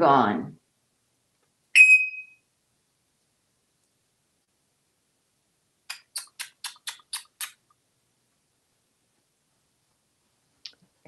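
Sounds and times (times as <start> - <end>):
short high beep: 1.8 - 2.4.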